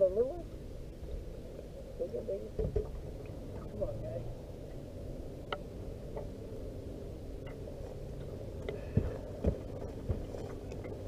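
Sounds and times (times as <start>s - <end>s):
low background rumble: 0.0s - 11.0s
light clicks and knocks of gear: 7.4s - 11.0s.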